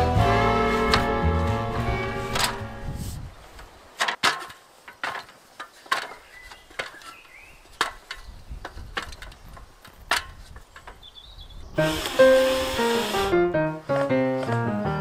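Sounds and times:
metal ladder clanking: 2.3s - 2.6s, 4.0s - 11.0s.

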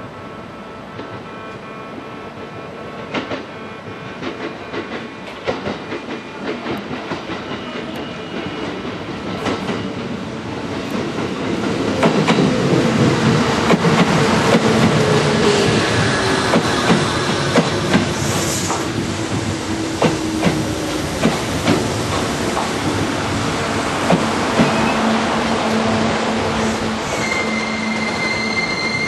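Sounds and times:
train running noise: 0.0s - 29.0s
train wheels clicking over rail joints: 10.8s - 23.1s, 24.0s - 24.8s.

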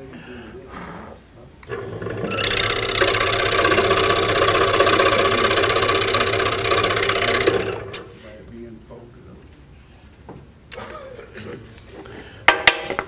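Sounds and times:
scroll saw cutting wood: 1.7s - 8.1s.

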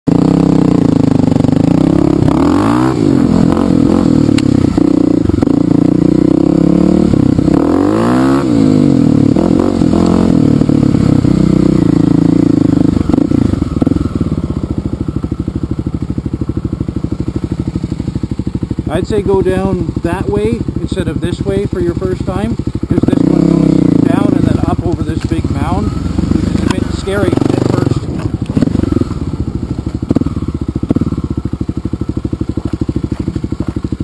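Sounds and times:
dirt bike engine revving: 0.1s - 34.0s.

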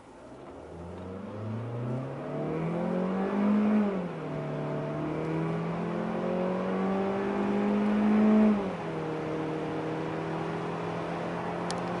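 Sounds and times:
car engine accelerating hard: 0.2s - 12.0s.

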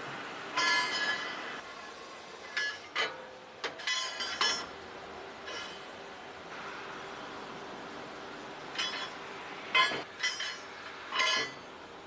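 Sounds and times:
factory hum: 0.0s - 12.0s
metal plate clanking on conveyor: 0.5s - 1.4s, 2.5s - 4.8s, 5.4s - 5.9s, 8.7s - 11.7s.

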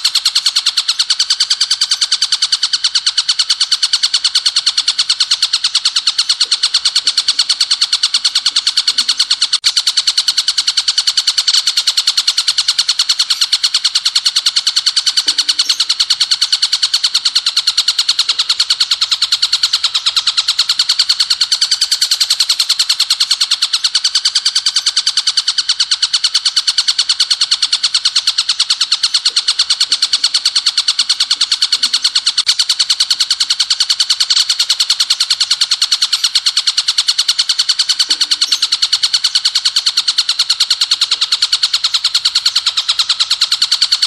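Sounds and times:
bird trilling song: 0.0s - 44.0s.

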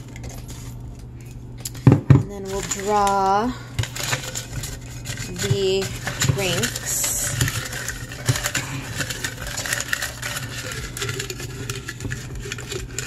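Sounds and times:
steady low hum: 0.0s - 13.0s
paper slips rustling: 2.3s - 11.9s.

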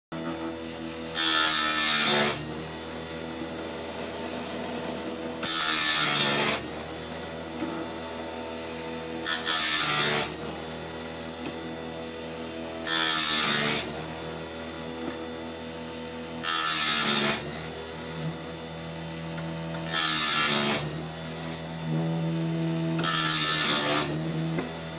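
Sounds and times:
grinding wheel motor hum: 0.2s - 24.9s
harsh grinding bursts: 1.1s - 11.0s, 12.8s - 14.5s, 16.4s - 17.7s, 19.8s - 24.9s.

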